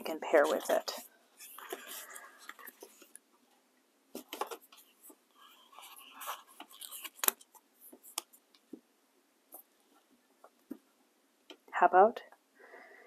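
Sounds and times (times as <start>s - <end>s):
paper sticker sheets rustling: 0.0s - 3.1s, 4.2s - 8.2s
sticker being peeled off: 5.9s - 7.5s.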